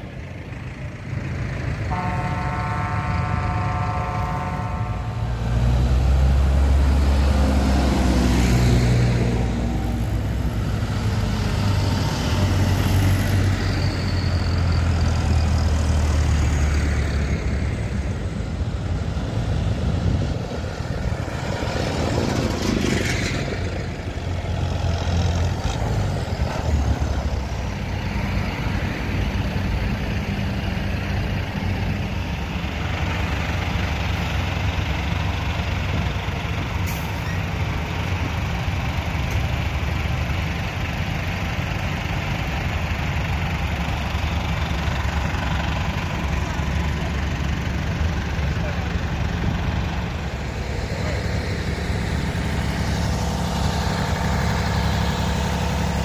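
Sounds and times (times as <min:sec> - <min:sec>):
tractors driving past: 0:00.0 - 0:56.0
vehicle horn: 0:01.9 - 0:05.4.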